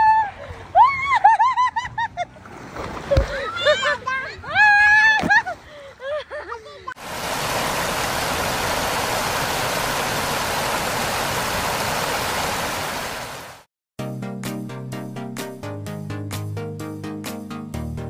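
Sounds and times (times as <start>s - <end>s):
fountain water spray rushing: 7.0s - 13.7s.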